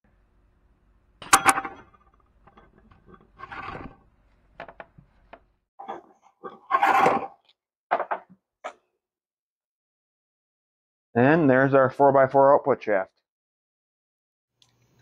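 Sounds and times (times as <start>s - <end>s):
metallic clanks: 1.2s - 3.9s
metal shaft scraping out: 1.2s - 4.1s.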